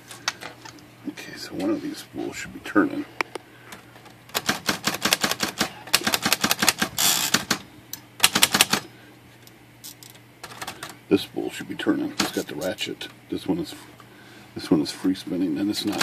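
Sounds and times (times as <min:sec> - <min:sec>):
manual typewriter clacking: 0:04.3 - 0:07.6, 0:08.2 - 0:08.8, 0:12.2 - 0:12.6.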